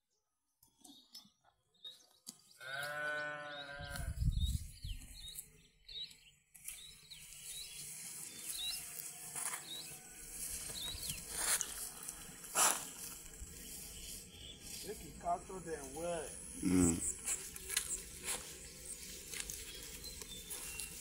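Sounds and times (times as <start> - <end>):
sheep bleating: 2.6 - 4.2
rustling in grass: 6.5 - 21.0.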